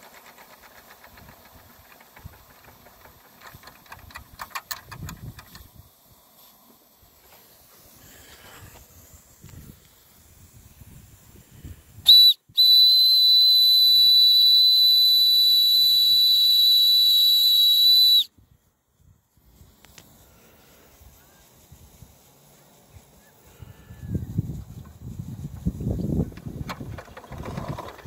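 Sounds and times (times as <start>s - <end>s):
steam hissing: 0.0s - 28.0s
steam whistle: 12.1s - 18.3s.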